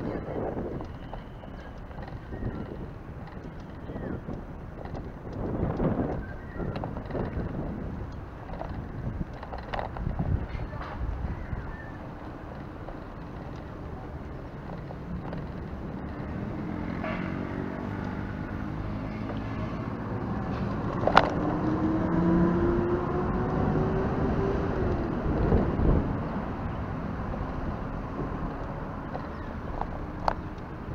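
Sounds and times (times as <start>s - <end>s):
road and wind rumble: 0.0s - 30.9s
passing vehicle engine: 12.6s - 30.9s.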